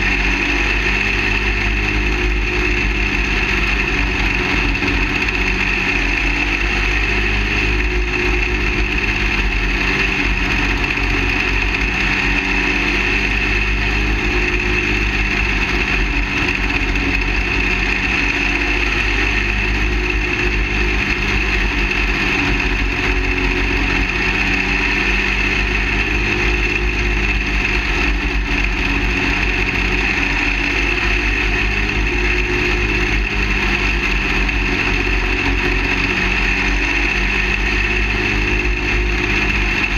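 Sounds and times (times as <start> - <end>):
race car engine running: 0.0 - 39.9.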